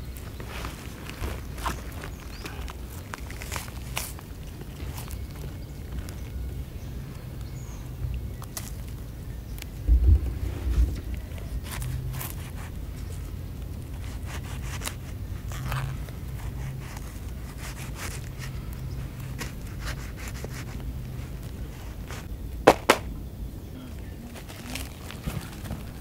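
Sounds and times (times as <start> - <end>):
low steady hum: 0.9 - 25.0
hands peeling sticky fruit: 10.9 - 23.0
sharp snaps: 22.7 - 23.2.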